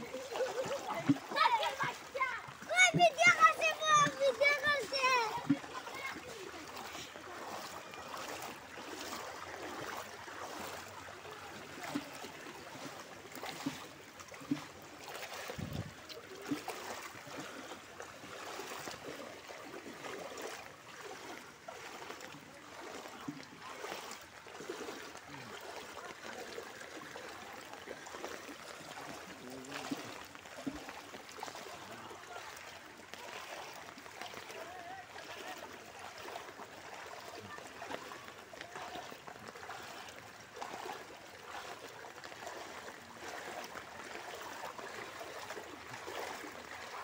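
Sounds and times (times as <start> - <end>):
footsteps sloshing through water: 0.0 - 47.0
moving water: 0.0 - 47.0.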